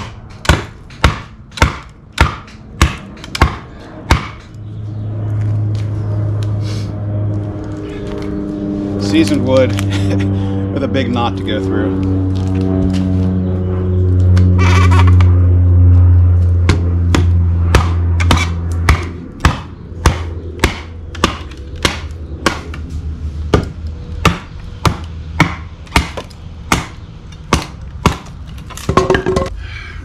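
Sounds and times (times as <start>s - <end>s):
knife chopping into wood: 0.0s - 4.5s, 16.6s - 22.8s, 23.5s - 28.3s
loud low drone: 0.0s - 30.0s.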